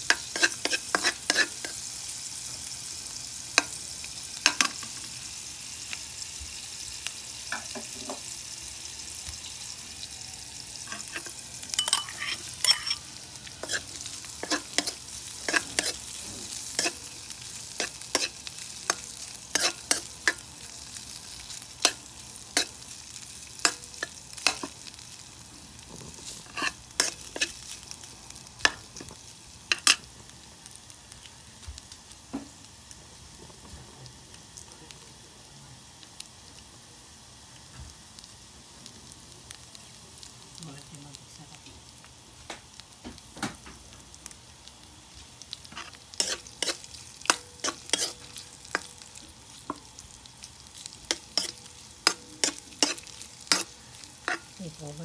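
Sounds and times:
food sizzling in a wok: 0.0s - 55.0s.

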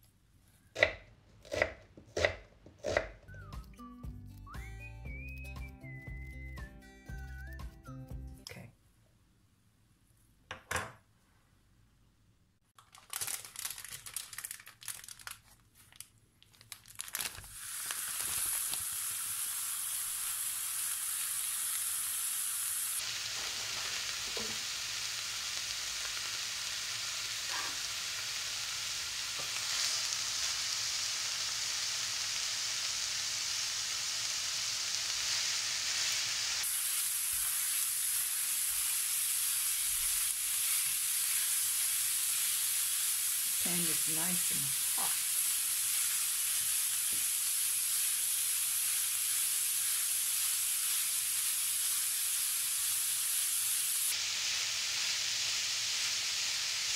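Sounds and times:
meat sizzling in a frying pan: 17.1s - 56.9s.

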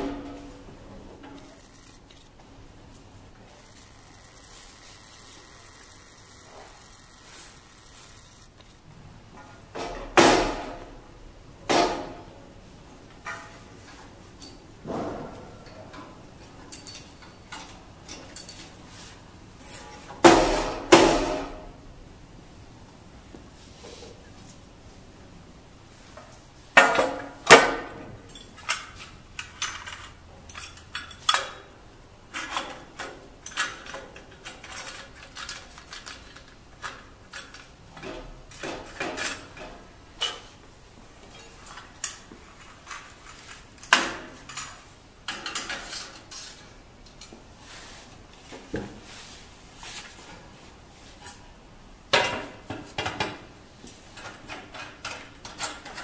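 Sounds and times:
metal parts clanking and clicking: 14.4s - 14.7s, 15.6s - 18.9s, 28.3s - 31.7s, 32.3s - 40.5s, 54.2s - 56.0s.

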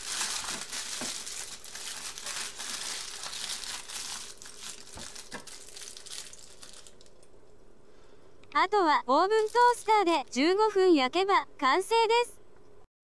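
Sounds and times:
aluminium foil crinkling: 0.0s - 7.4s, 9.2s - 10.3s.

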